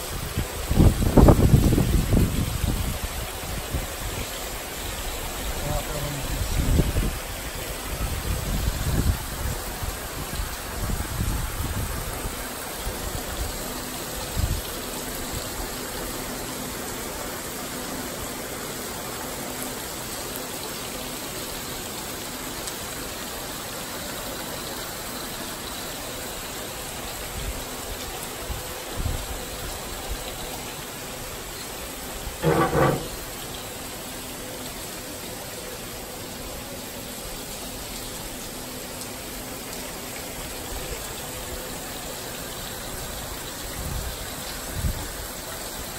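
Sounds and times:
rain falling: 0:00.0 - 0:45.9
wind buffeting microphone: 0:00.1 - 0:04.2, 0:06.3 - 0:07.3, 0:07.9 - 0:12.4.

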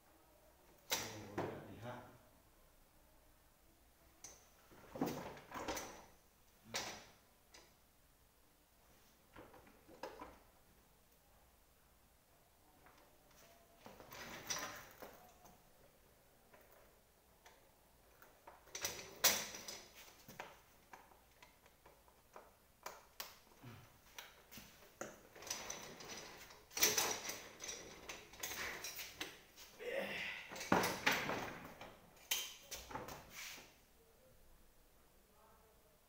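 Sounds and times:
office chair parts knocking: 0:30.5 - 0:33.2.

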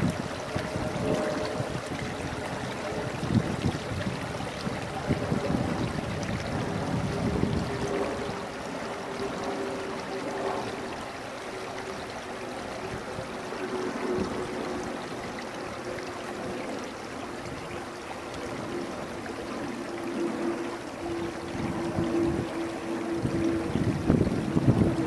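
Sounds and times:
humming engine tone: 0:00.0 - 0:25.0.

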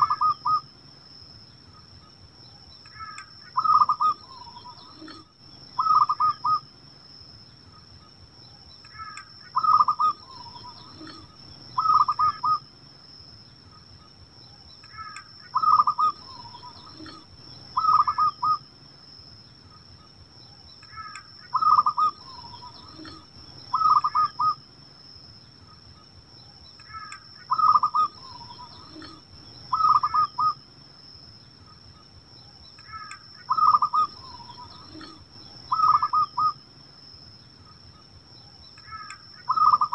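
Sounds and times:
dove cooing: 0:00.0 - 0:00.6, 0:03.0 - 0:06.6, 0:09.0 - 0:12.6, 0:14.9 - 0:18.6, 0:20.9 - 0:24.6, 0:26.9 - 0:30.6, 0:32.9 - 0:36.6, 0:38.9 - 0:39.9
faint high-pitched whine: 0:00.0 - 0:39.9.

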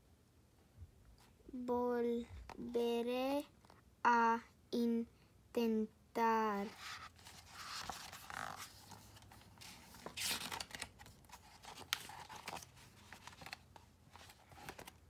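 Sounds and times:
book pages rustling: 0:06.6 - 0:15.0.

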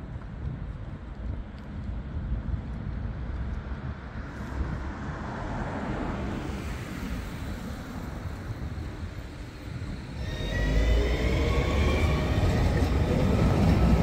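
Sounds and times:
wind buffeting microphone: 0:00.0 - 0:14.0
road traffic rumble: 0:02.7 - 0:14.0.

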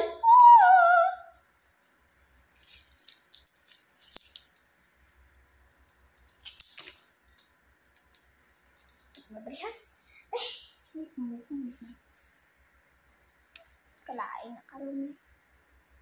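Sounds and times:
girl singing: 0:00.0 - 0:01.4
ornament crinkling and rustling: 0:01.4 - 0:09.7.

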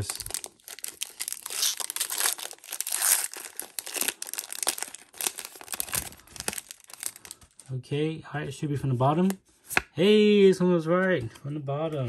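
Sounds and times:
foil wrapper tearing and crinkling: 0:00.0 - 0:07.7.

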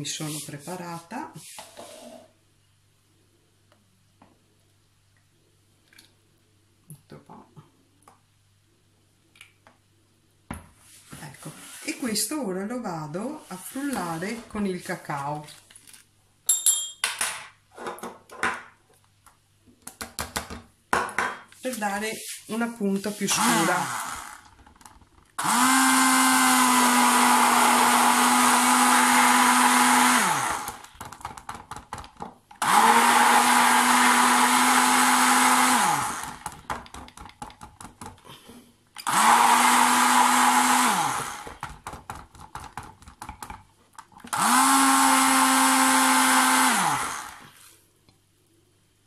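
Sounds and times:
stick blender running: 0:23.3 - 0:37.0, 0:39.0 - 0:42.1, 0:44.2 - 0:47.7.

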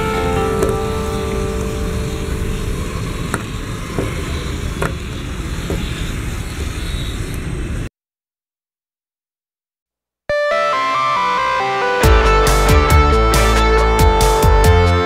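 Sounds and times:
steady rushing noise: 0:00.0 - 0:07.9.

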